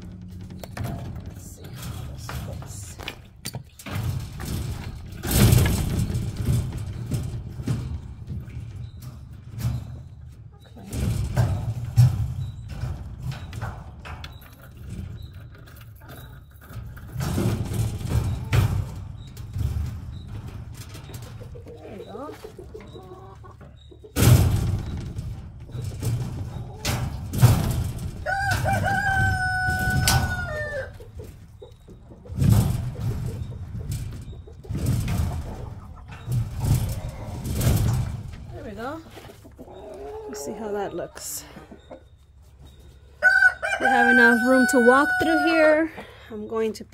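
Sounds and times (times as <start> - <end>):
thumps and knocks with rustling: 0.0 - 23.0, 23.6 - 39.6
hens clucking softly: 21.0 - 25.0, 28.2 - 46.4
rooster crowing: 28.2 - 30.9, 43.2 - 45.8.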